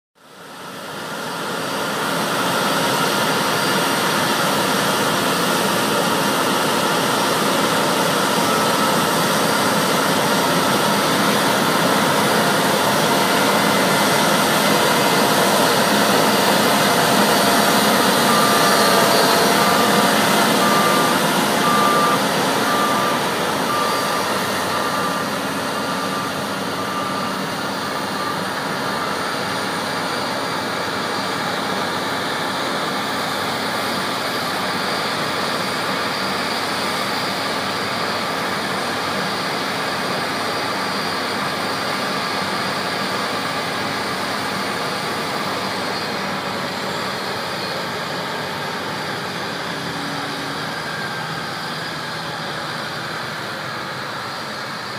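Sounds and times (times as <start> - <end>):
combine harvester drone: 0.2 - 54.9
short electronic beeps: 15.6 - 29.7.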